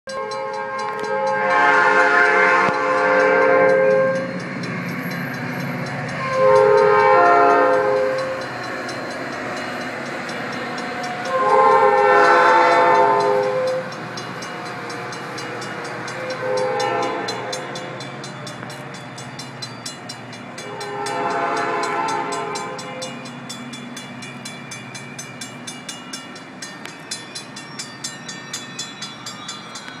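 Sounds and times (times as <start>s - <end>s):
train horn blasts: 0.1s - 4.6s, 6.0s - 8.5s, 11.0s - 14.0s, 14.6s - 18.2s, 20.6s - 23.3s
passing train rumble: 0.1s - 30.0s
wheels clicking over rail joints: 0.1s - 30.0s.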